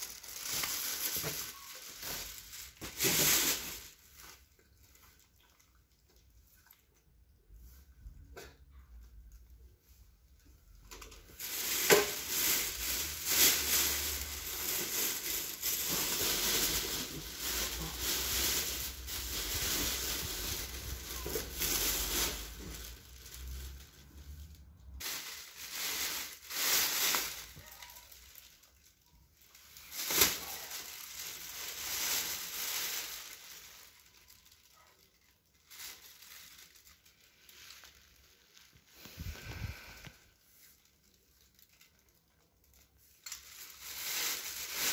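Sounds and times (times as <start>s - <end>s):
crinkly rustling: 0.0s - 44.9s.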